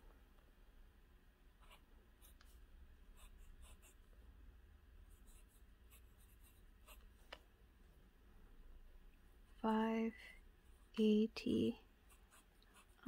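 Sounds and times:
pen nib scratching on paper: 0:12.0 - 0:13.0.

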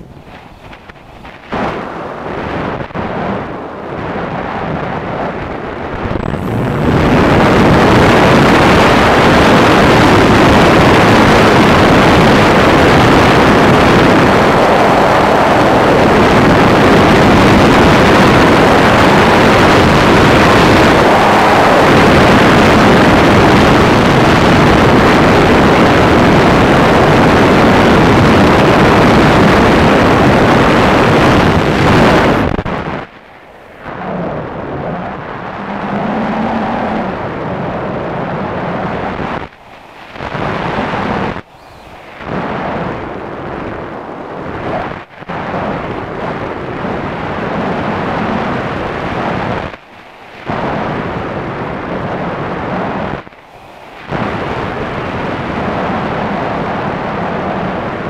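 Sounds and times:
wind on microphone: 0:00.0 - 0:58.0
electric motor and propeller: 0:34.0 - 0:44.7.

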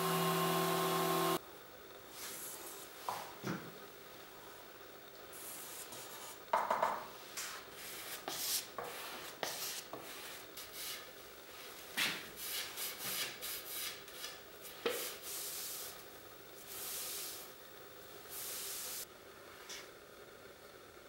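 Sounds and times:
rubbing and wiping on wood: 0:07.5 - 0:16.0.

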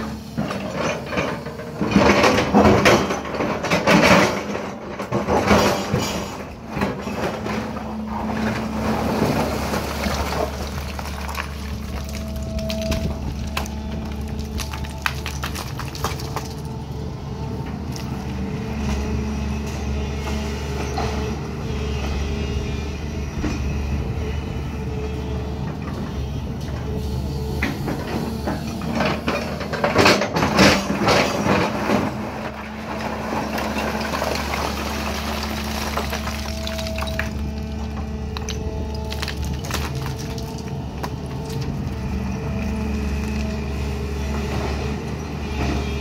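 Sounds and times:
rock scraping steel bucket: 0:00.0 - 0:16.7, 0:28.8 - 0:41.8
diesel engine with hydraulic whine: 0:00.0 - 0:46.0.

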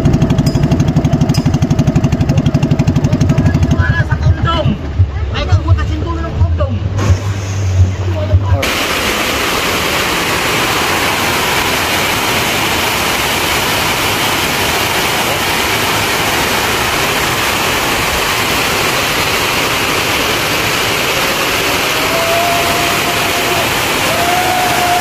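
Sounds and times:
water pouring over a dam: 0:08.6 - 0:25.0.

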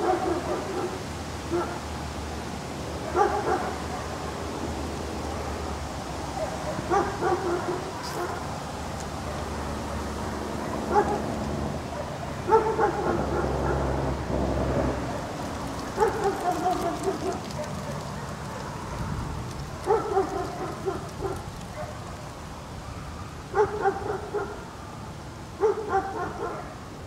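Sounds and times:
dog yipping and barking: 0:03.1 - 0:03.8, 0:06.3 - 0:08.4, 0:10.9 - 0:11.2, 0:11.9 - 0:13.8, 0:16.0 - 0:18.3, 0:19.8 - 0:22.0, 0:23.6 - 0:24.6, 0:25.6 - 0:26.7.

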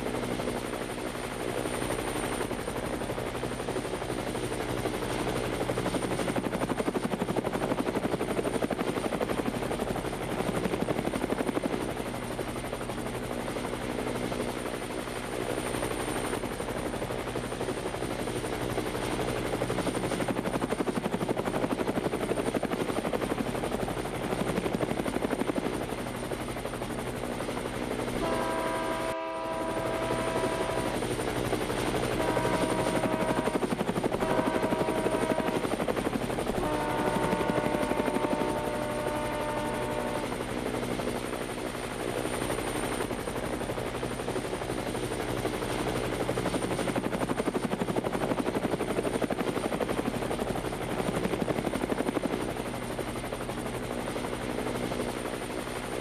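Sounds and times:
train horn: 0:28.2 - 0:30.9, 0:32.2 - 0:33.6, 0:34.2 - 0:35.5, 0:36.6 - 0:40.2.

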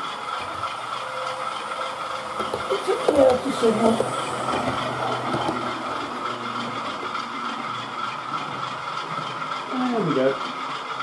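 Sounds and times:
electric motor whirr: 0:00.0 - 0:11.0.

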